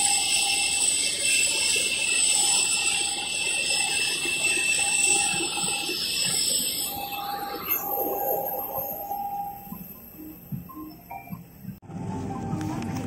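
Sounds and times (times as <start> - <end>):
jet turbine whine and hiss: 0.0 - 13.0.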